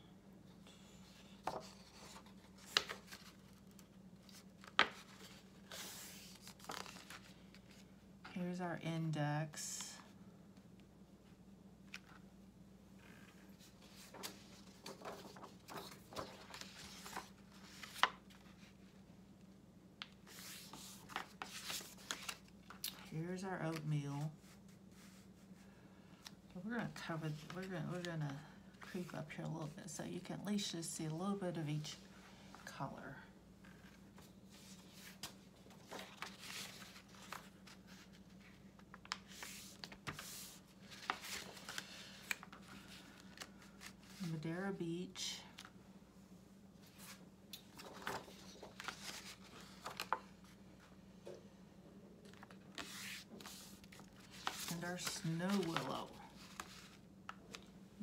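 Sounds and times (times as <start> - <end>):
faint steady hum: 0.0 - 58.0
paper sheets rustling: 1.1 - 7.8, 13.5 - 18.8, 20.2 - 22.9, 33.6 - 44.3, 46.8 - 50.6, 52.2 - 57.7.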